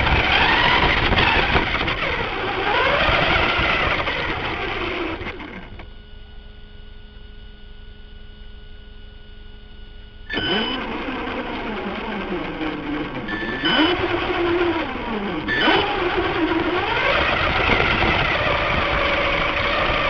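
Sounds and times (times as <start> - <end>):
toy car motor whining: 0.0 - 5.8, 10.3 - 20.0
faint electronic whine: 0.0 - 20.0.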